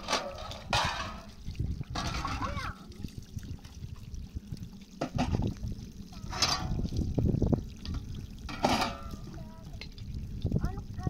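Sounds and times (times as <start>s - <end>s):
dishes clattering: 0.0s - 1.3s, 1.9s - 2.6s, 8.5s - 9.1s
water pouring and trickling: 0.0s - 11.0s.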